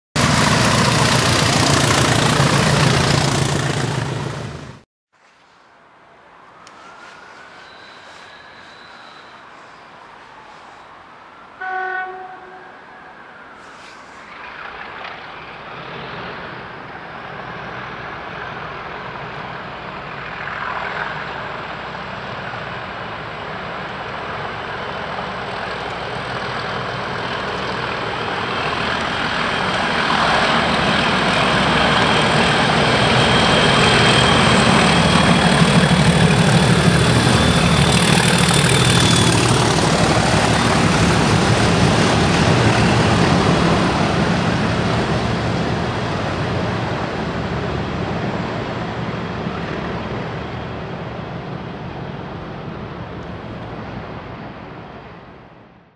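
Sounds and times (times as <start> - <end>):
diesel locomotive engines droning: 0.2 - 55.9
thin high whistle: 6.6 - 14.3.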